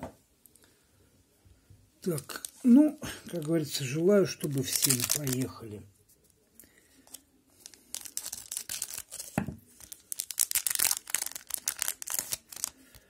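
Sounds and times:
wrapper crinkling and tearing: 2.0 - 5.7, 7.1 - 13.0.

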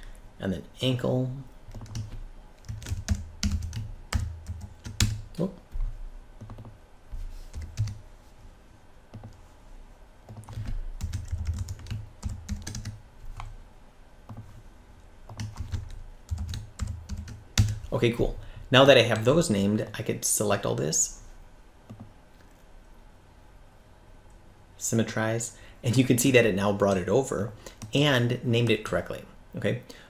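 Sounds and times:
typing on computer keyboard: 1.7 - 5.2, 5.8 - 6.8, 7.5 - 8.0, 10.3 - 13.5, 15.3 - 17.9.

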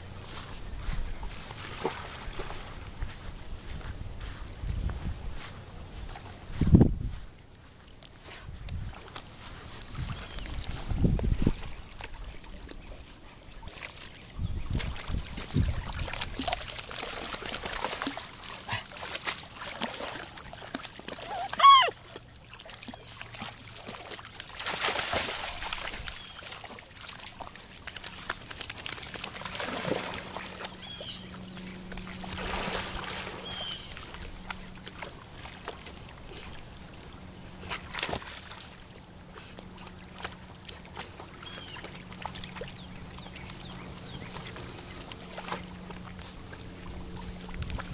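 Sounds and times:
water sloshing and splashing: 0.0 - 47.9
puppy high cry: 21.2 - 22.0.

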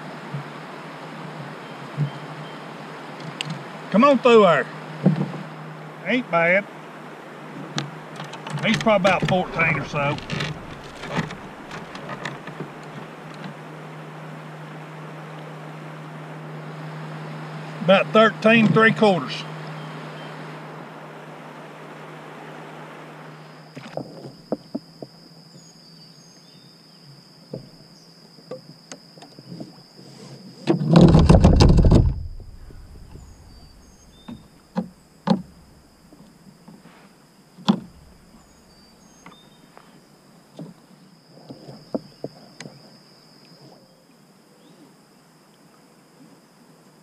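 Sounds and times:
insect drone: 0.0 - 47.0
metal pole rattling clunk: 8.3 - 12.6, 30.8 - 33.9
sharp knocks: 31.0 - 35.6.

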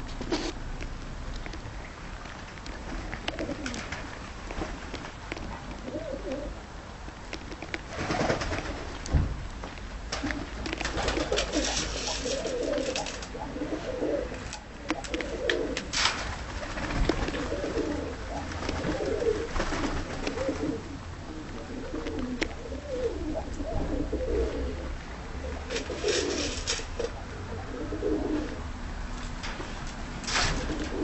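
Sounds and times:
pigeons cooing: 2.8 - 4.2, 5.5 - 6.6, 10.1 - 16.0, 16.6 - 28.7, 30.5 - 31.0
rustling: 7.3 - 24.0, 25.7 - 27.2.

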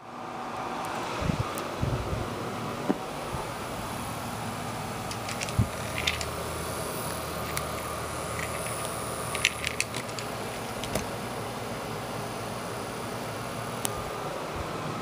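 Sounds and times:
steady hiss: 0.1 - 15.0
plastic fan clicking and rattling: 5.0 - 11.3.

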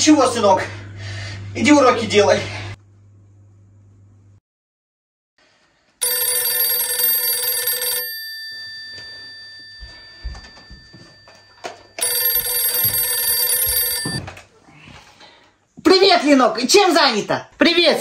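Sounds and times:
telephone bell ringing: 6.0 - 14.3.

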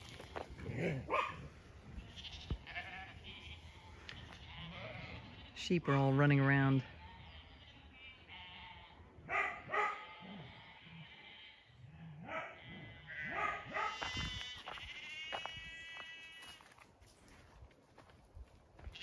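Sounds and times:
sheep bleating: 1.8 - 9.1, 9.7 - 16.8, 18.8 - 19.0.

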